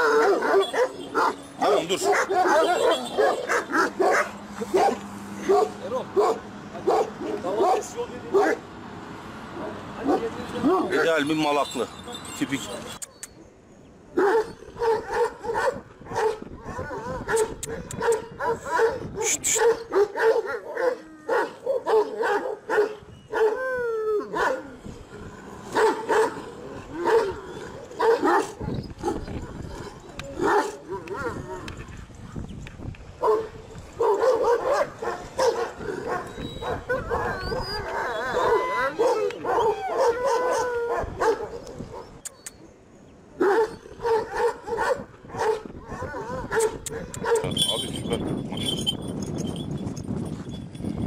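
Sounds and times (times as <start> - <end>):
dog yelping: 0.0 - 7.8, 33.2 - 42.6
dogs barking: 0.0 - 8.7, 9.5 - 11.2, 14.2 - 23.6, 24.3 - 24.8, 25.6 - 31.8, 33.2 - 42.5, 43.4 - 48.9
dog whining: 35.8 - 42.6.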